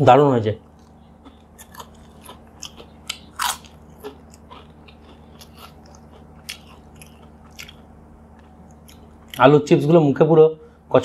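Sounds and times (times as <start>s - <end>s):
potato chips crunching: 0.8s - 9.5s.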